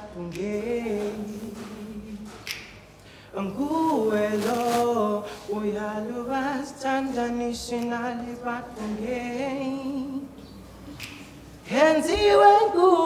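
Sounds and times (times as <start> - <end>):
man singing unaccompanied: 0.0 - 2.3, 3.4 - 10.4.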